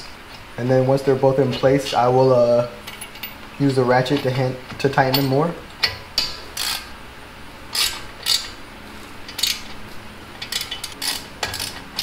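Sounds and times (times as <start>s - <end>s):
ratchet wrench clicking: 6.2s - 6.9s, 7.7s - 8.6s, 9.3s - 9.7s, 10.4s - 12.0s.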